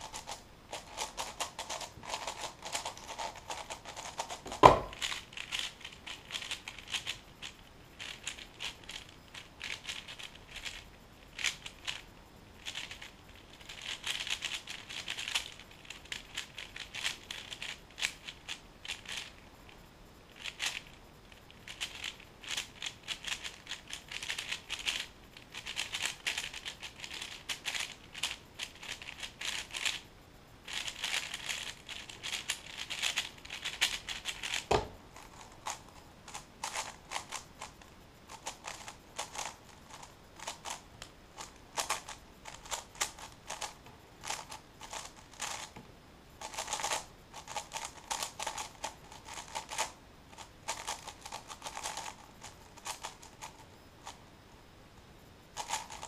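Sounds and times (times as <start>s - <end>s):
sharp knock: 4.5s - 5.0s, 34.7s - 35.0s
puzzle cube clicking: 30.7s - 40.8s, 46.4s - 52.2s.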